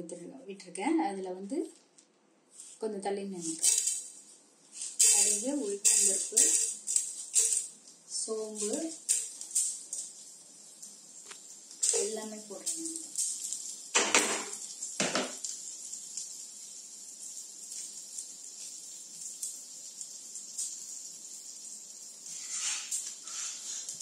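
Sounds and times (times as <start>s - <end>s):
food sizzling in hot oil: 3.4s - 24.0s
plastic spatula clattering on pan: 14.0s - 15.4s.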